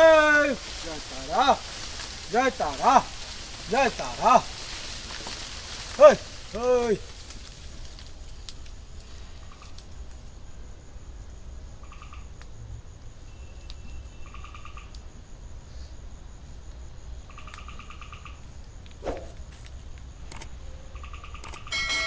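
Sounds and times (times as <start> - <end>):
insects trilling: 0.0 - 22.0
clicks: 20.3 - 20.5.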